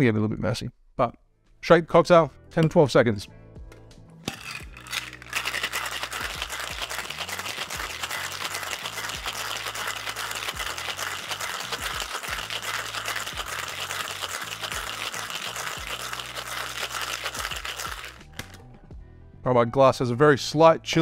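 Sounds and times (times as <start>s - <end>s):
ice rattling in cocktail shaker: 4.3s - 18.6s.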